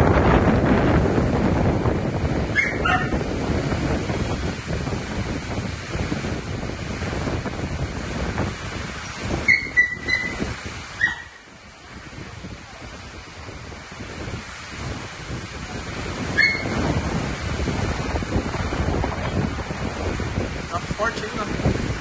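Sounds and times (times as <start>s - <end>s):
heavy rain: 0.0s - 22.0s
storm wind gusts: 0.0s - 22.0s
short high yelps: 2.6s - 3.1s, 9.5s - 10.4s, 11.0s - 11.4s.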